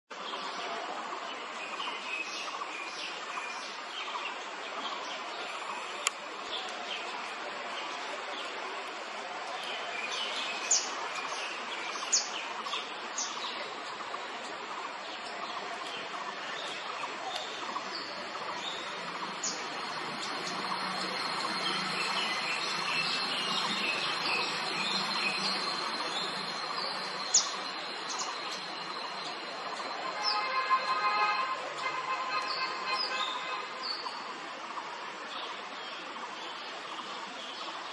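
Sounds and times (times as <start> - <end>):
birds chirping: 9.6 - 34.2
high insect drone: 18.4 - 29.8.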